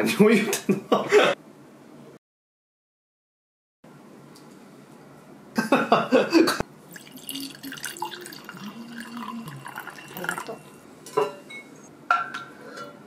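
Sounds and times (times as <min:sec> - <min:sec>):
wine pouring into a glass: 0:06.9 - 0:10.8.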